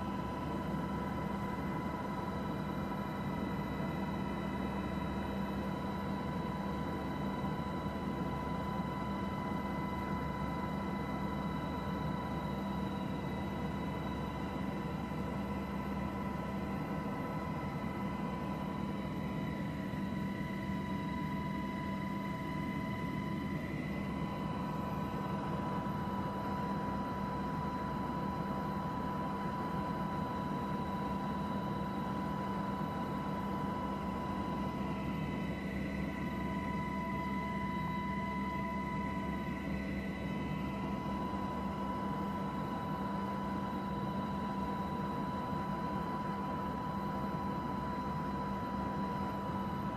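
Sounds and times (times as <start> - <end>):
aircraft engine drone: 0.0 - 49.9
constant high whine: 0.0 - 49.9.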